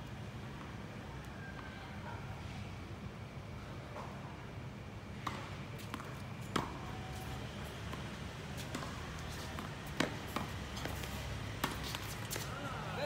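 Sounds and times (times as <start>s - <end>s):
tennis balls popping off rackets: 5.2s - 12.6s.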